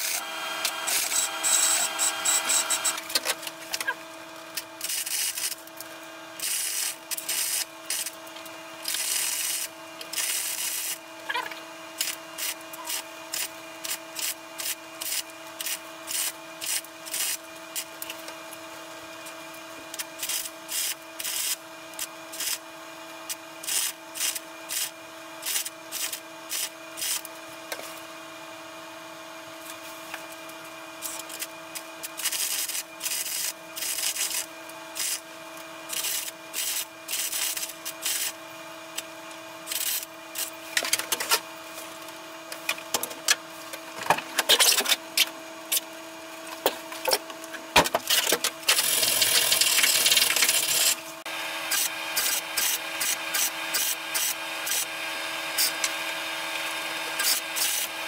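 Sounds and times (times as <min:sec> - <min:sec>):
welding arc crackling: 0:00.0 - 0:11.1, 0:12.0 - 0:18.6, 0:19.2 - 0:22.6, 0:23.3 - 0:27.3, 0:29.6 - 0:38.4, 0:39.6 - 0:54.9, 0:56.6 - 0:58.0
steady hum: 0:00.0 - 0:22.6.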